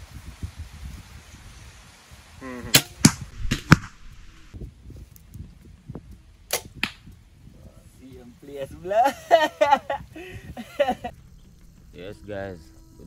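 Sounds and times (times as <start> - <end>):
crossbow string snaps: 6.5 - 7.2.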